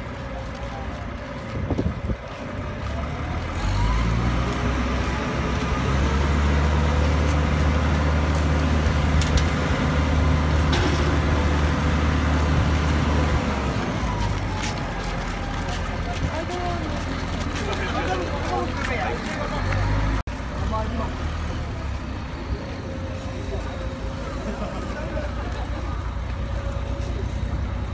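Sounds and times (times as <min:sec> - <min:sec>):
crane diesel engine revving: 0:02.7 - 0:15.6.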